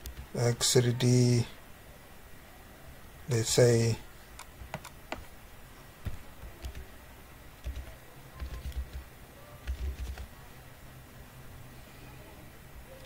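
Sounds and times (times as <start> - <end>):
keyboard typing clicks: 6.4 - 6.9, 7.6 - 9.0, 9.6 - 10.3.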